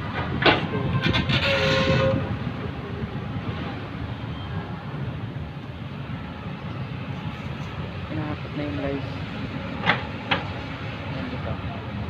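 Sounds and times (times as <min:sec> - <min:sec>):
excavator diesel engine rumbling: 0:00.0 - 0:12.0.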